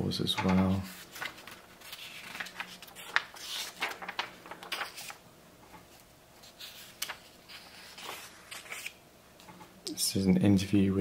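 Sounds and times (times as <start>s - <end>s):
magazine pages rustling: 0.4s - 5.2s, 5.9s - 9.0s
sharp paper tick: 1.2s - 5.2s.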